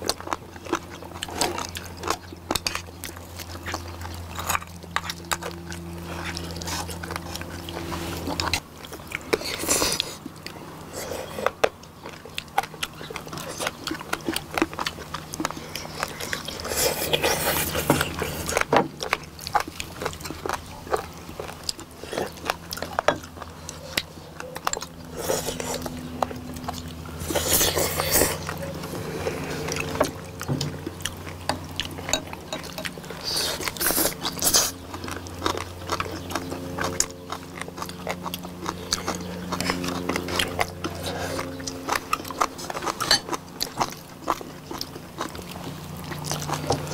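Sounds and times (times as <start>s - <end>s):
wet chewing and smacking: 0.0s - 46.9s
slurping: 2.6s - 18.7s, 19.5s - 35.6s, 37.9s - 44.0s
chopsticks clinking on dishes: 32.1s - 33.0s.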